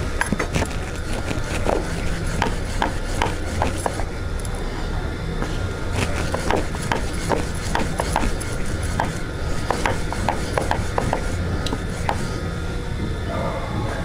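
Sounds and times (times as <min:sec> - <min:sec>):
rolling pin rubbing on dough: 0:00.2 - 0:04.1, 0:05.4 - 0:12.4
rolling pin knocking on board: 0:02.4 - 0:04.0, 0:06.3 - 0:12.2.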